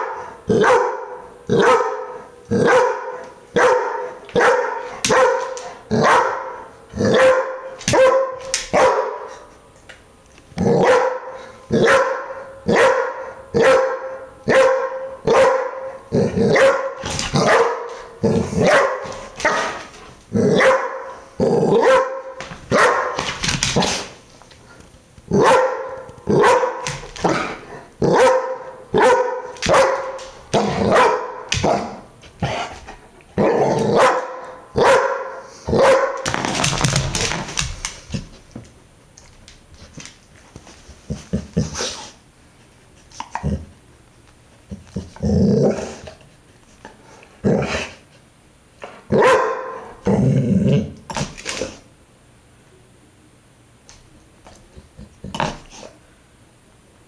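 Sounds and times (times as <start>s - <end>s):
dog barking: 0.0s - 9.4s, 10.7s - 19.8s, 20.5s - 23.2s, 25.3s - 32.0s, 33.4s - 36.2s, 49.1s - 50.0s.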